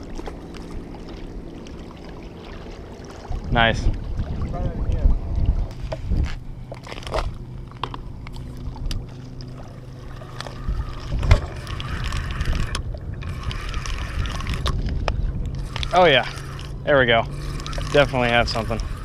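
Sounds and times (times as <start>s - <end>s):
wind rumbling on microphone: 0.0s - 19.0s
fishing reel cranking: 9.6s - 19.0s.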